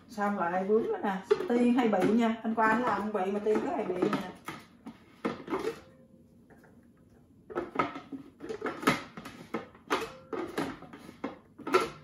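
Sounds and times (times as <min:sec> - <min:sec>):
plastic lid clattering against bowl: 0:00.8 - 0:05.9, 0:07.5 - 0:12.0.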